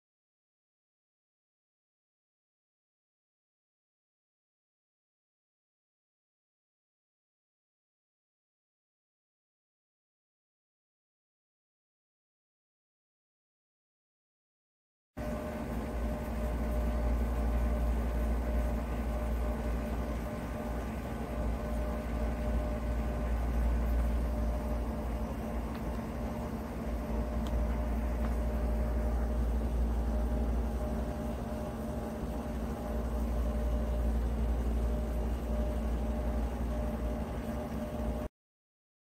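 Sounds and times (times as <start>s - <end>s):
lathe humming: 15.2s - 38.3s.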